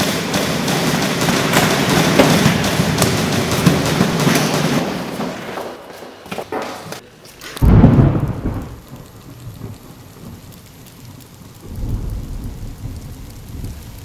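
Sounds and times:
deep rumble: 0:11.6 - 0:14.0.

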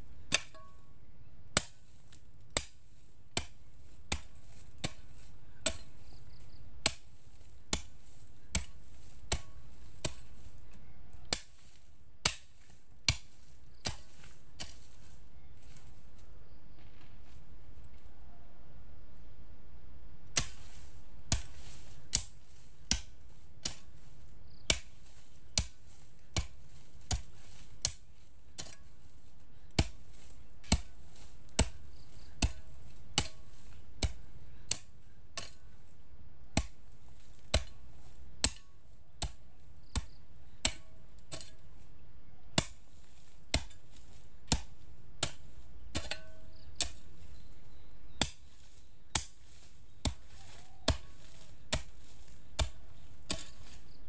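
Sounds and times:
hoe chopping into soil: 0:00.3 - 0:00.8, 0:01.5 - 0:17.4, 0:20.3 - 0:41.9, 0:42.5 - 0:54.0.

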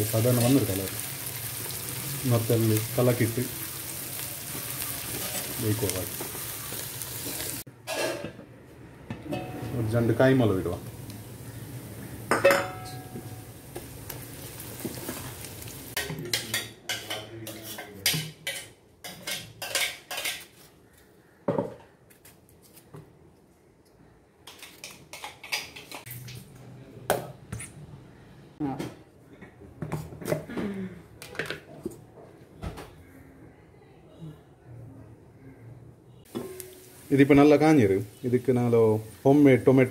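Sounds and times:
steel utensils and pans clinking: 0:07.2 - 0:08.4, 0:09.2 - 0:10.0, 0:12.3 - 0:13.4, 0:16.0 - 0:20.6.

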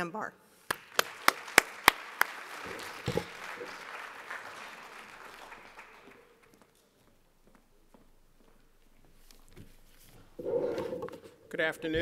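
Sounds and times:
close loud claps: 0:00.6 - 0:06.7
audience applauding: 0:00.7 - 0:06.7.

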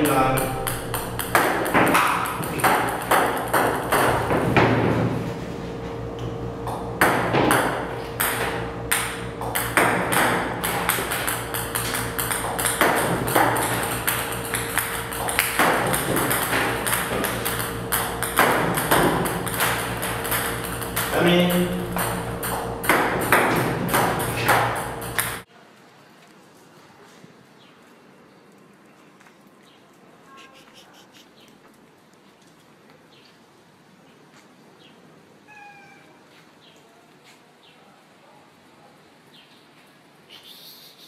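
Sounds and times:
ping-pong balls bouncing on table: 0:00.0 - 0:04.9, 0:06.7 - 0:25.4.

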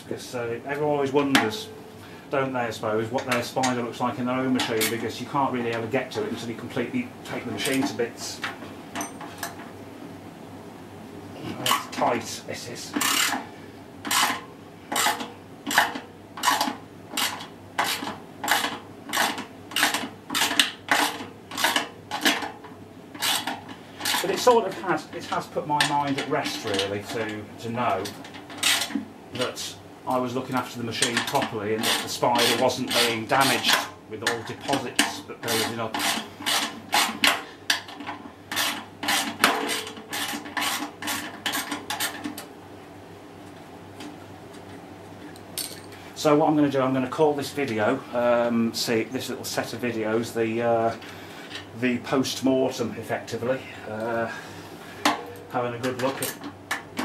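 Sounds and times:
hand tool rasping on metal: 0:23.2 - 0:24.4, 0:31.8 - 0:33.8, 0:35.4 - 0:37.3, 0:38.5 - 0:42.2.

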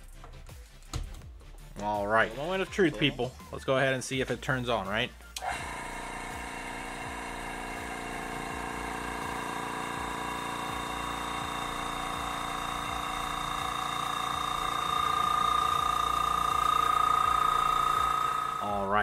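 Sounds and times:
airbrush compressor running: 0:05.4 - 0:19.0.

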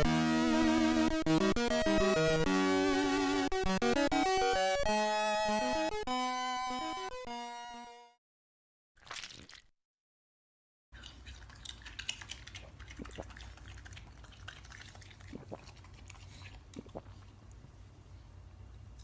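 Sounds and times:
cartoon rat chewing: 0:11.0 - 0:17.8.

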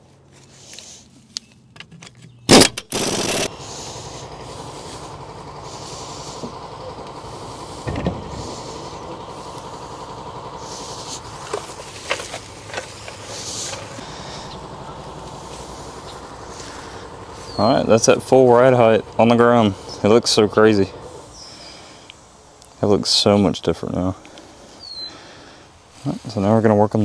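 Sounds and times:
steady mechanical hum: 0:00.0 - 0:27.0
air impact wrench burst: 0:02.5 - 0:22.1
thump: 0:07.9 - 0:08.2.

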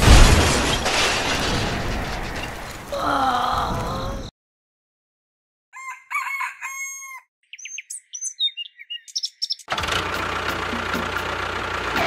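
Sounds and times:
rooster crowing: 0:05.8 - 0:07.3
small birds chirping: 0:06.7 - 0:09.7.

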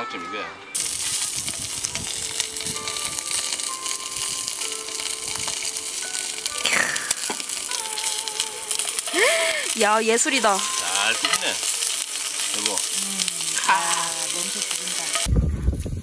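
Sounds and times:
meat sizzling in hot oil: 0:00.8 - 0:15.3.

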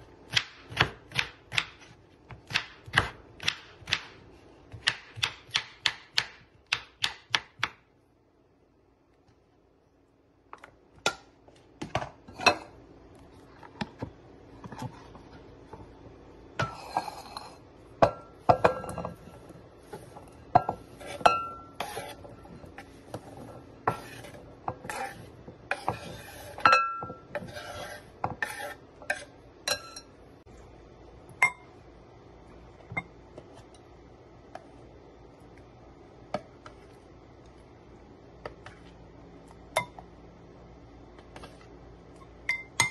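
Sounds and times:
knife chopping on wooden board: 0:00.3 - 0:07.8
glass bowls and utensils clinking: 0:29.6 - 0:30.2.

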